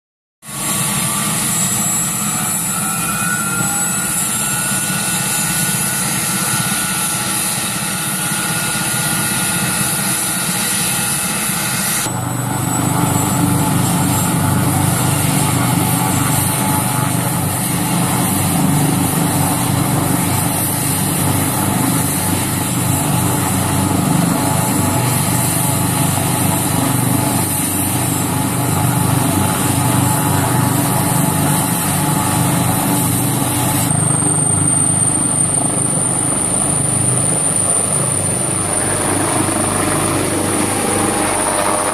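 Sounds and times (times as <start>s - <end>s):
helicopter rotor beat: 0.4s - 41.9s
helicopter turbine whine: 0.4s - 41.9s.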